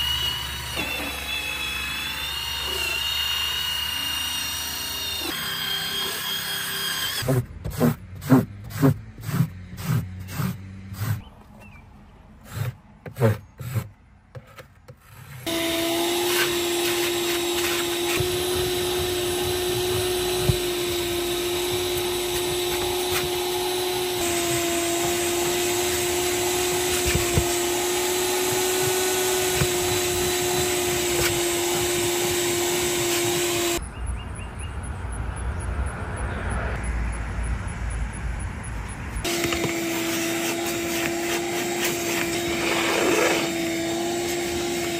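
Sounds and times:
vacuum cleaner running: 0.0s - 4.2s, 15.5s - 33.8s, 39.2s - 44.9s.

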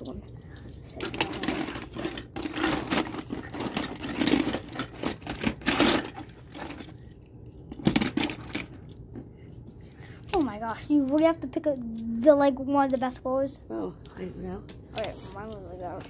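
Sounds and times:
toy cars and track rattling: 0.8s - 7.1s, 7.8s - 8.9s.

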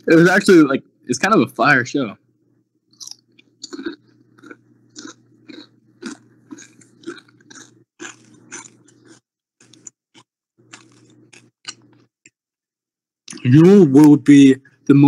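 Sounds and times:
person chewing crunchily: 2.9s - 12.4s.

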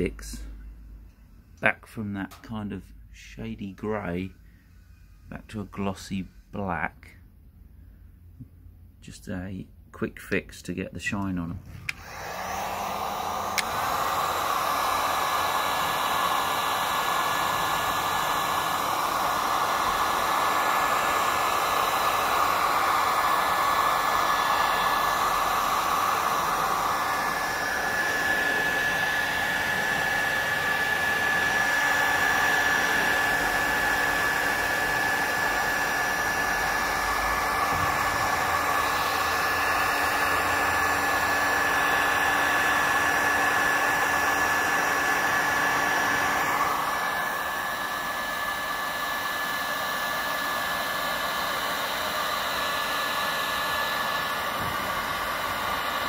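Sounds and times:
heat gun blowing air: 11.3s - 56.0s.

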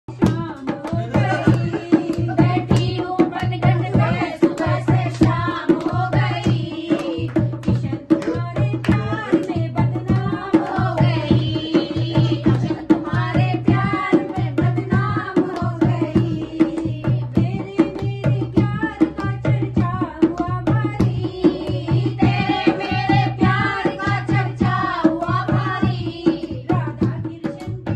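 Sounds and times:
hand drum beat: 0.1s - 27.9s
women singing devotional song: 0.1s - 27.9s
hand-clapping: 0.2s - 3.7s, 4.4s - 11.1s, 15.4s - 15.8s.

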